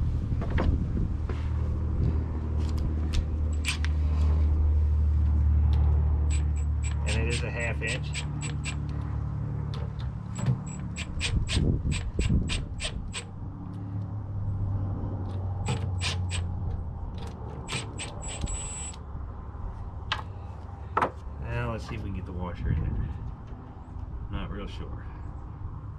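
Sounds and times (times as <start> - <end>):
ratchet wrench clicking: 3.5 - 3.9, 6.3 - 9.0, 10.6 - 13.3, 17.6 - 19.0.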